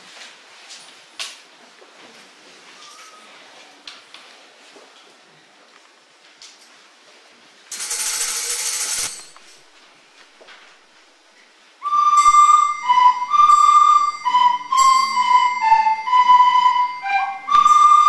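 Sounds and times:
recorder ensemble playing: 0:11.8 - 0:18.0.

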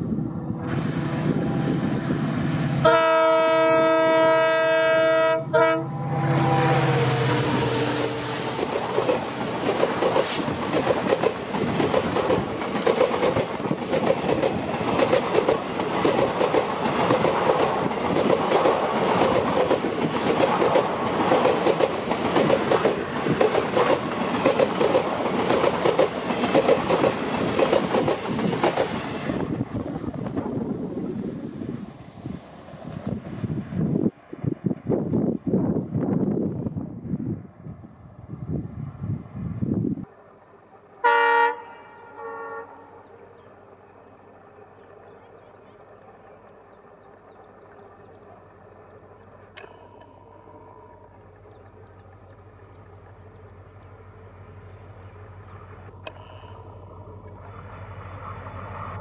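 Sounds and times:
locomotive engine running: 0:00.0 - 0:33.8, 0:40.0 - 0:59.0
locomotive air horn blasts: 0:00.6 - 0:08.5, 0:41.0 - 0:43.0
train wheels clacking over rail joints: 0:08.5 - 0:29.4.

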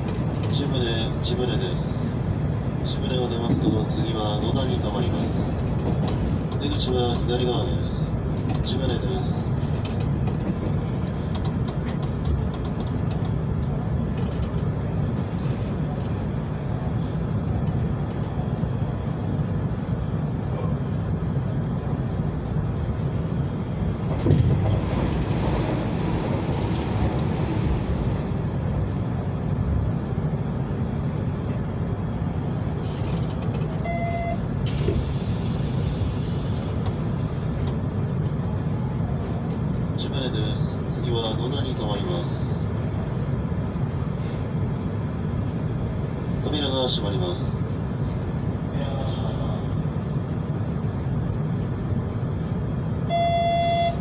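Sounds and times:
train wheels rumbling on rail: 0:00.0 - 0:53.0
brief tone: 0:33.8 - 0:34.4, 0:53.1 - 0:54.0.

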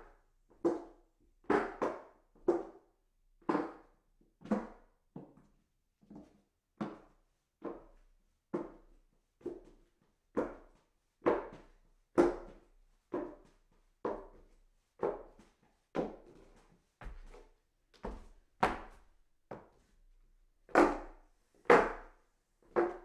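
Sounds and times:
footsteps on hollow wooden stairs: 0:16.0 - 0:17.4, 0:18.0 - 0:19.7.

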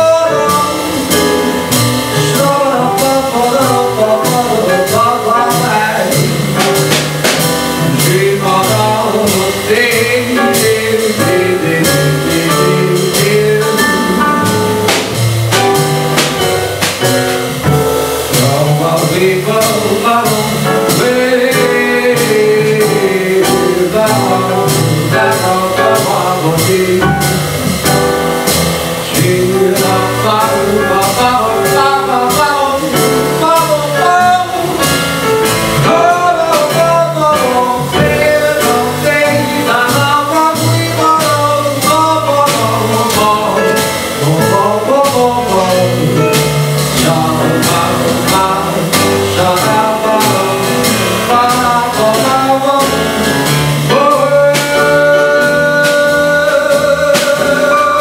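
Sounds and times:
person singing: 0:00.0 - 0:28.2, 0:29.0 - 0:58.0
drum kit cymbals: 0:00.0 - 0:58.0
stage piano: 0:00.0 - 0:58.0
upright double bass: 0:00.0 - 0:58.0.

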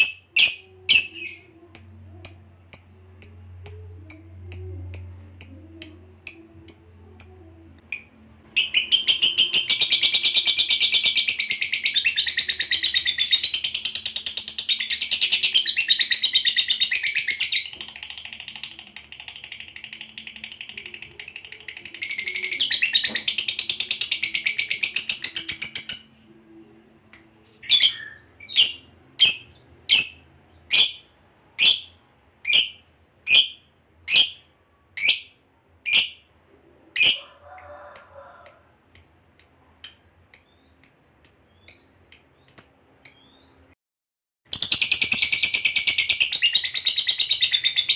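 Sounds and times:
bird chirps: 0:38.0 - 0:43.8.

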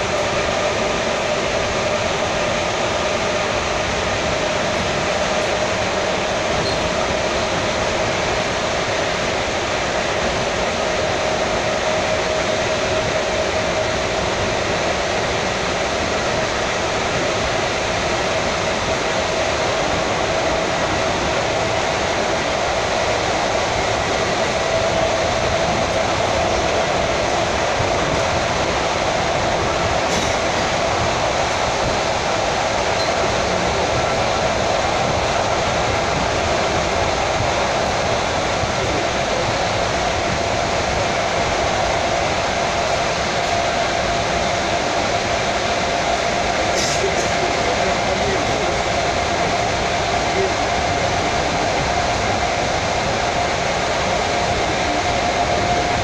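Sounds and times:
steady whine: 0:00.0 - 0:56.0
train wheels rumbling on rails: 0:00.0 - 0:56.0.

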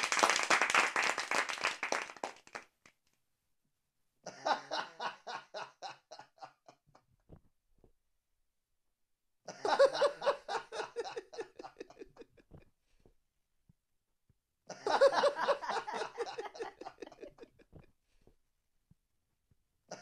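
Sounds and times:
recorded audience laughter: 0:09.5 - 0:12.3, 0:14.7 - 0:17.7.

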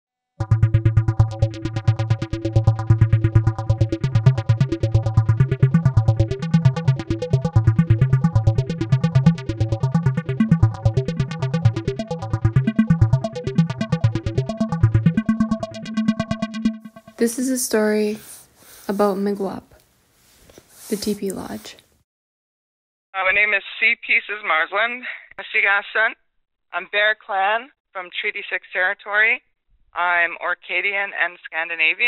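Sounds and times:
electronic synthesizer music: 0:00.4 - 0:17.6.

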